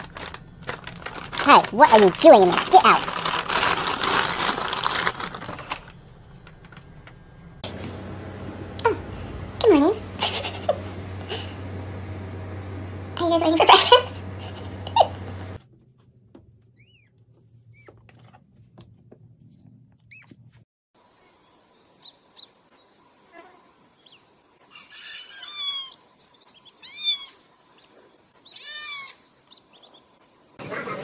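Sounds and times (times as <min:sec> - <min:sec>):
faint low hum: 0:00.0 - 0:17.9
ducklings peeping: 0:22.0 - 0:22.6, 0:24.0 - 0:30.0.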